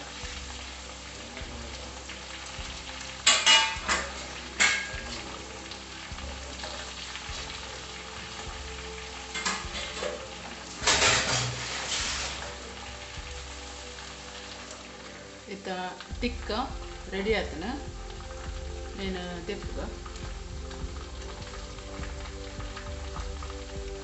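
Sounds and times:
chicken sizzling in oil: 0:00.0 - 0:24.0
steel spoons scraping pan: 0:10.9 - 0:12.0.

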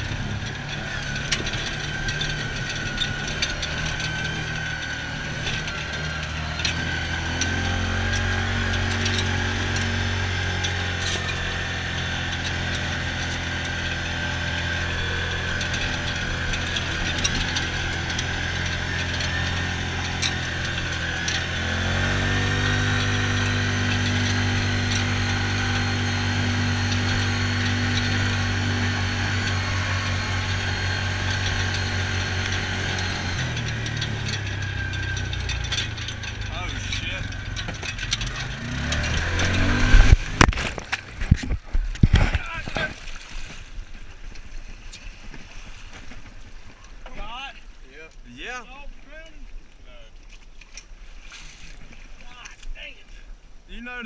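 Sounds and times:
utility vehicle engine running: 0:00.0 - 0:47.4
vehicle clicks and rattles: 0:00.0 - 0:48.3.

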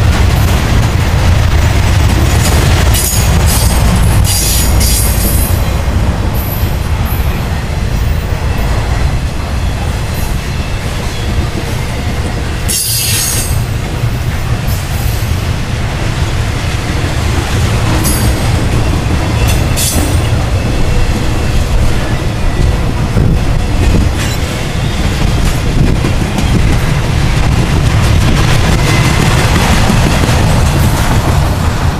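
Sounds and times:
freight train wheels rumbling: 0:00.0 - 0:31.9.

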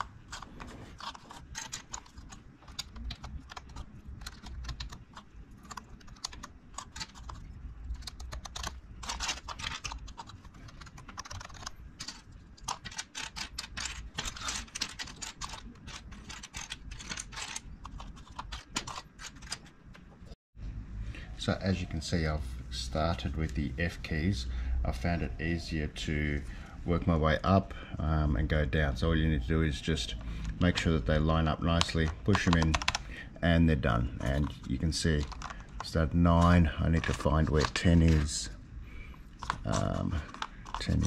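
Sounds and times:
keycaps clicking and tapping: 0:00.0 - 0:20.1, 0:31.8 - 0:33.1, 0:35.2 - 0:35.9.

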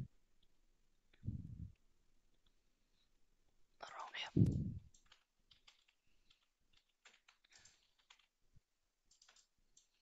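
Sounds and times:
keyboard keystrokes clicking: 0:04.9 - 0:08.4, 0:09.0 - 0:10.0.

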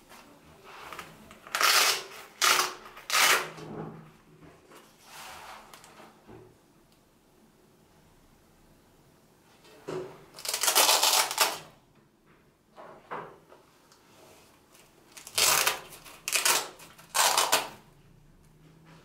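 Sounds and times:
velcro ripping apart: 0:01.4 - 0:03.6, 0:10.4 - 0:11.7, 0:15.1 - 0:17.8.

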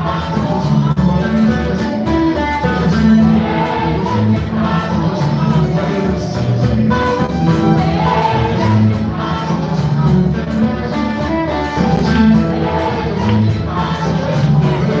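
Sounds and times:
amplified instrumental backing: 0:00.0 - 0:15.0
voices singing gospel: 0:00.0 - 0:15.0.

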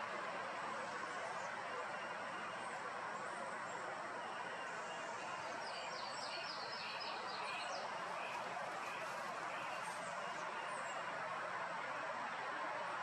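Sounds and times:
outdoor background noise: 0:00.0 - 0:13.0
small birds chirping: 0:04.7 - 0:11.0.

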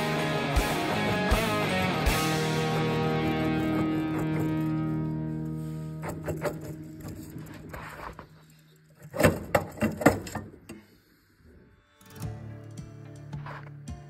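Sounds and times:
background music: 0:00.0 - 0:07.3, 0:12.0 - 0:14.0
metal clanks and knocks: 0:03.2 - 0:05.0, 0:06.0 - 0:08.1, 0:09.0 - 0:10.8.

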